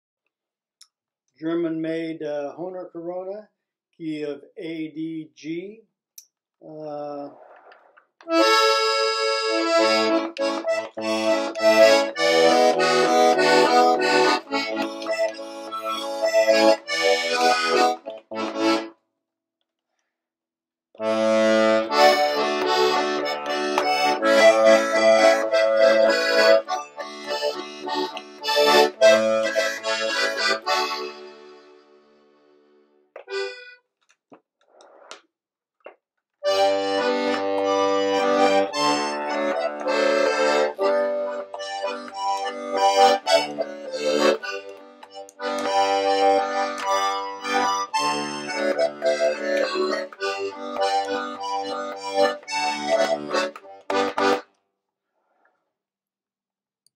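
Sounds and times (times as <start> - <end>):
button accordion playing tune: 8.2 - 18.9, 21.0 - 33.8, 36.4 - 54.5.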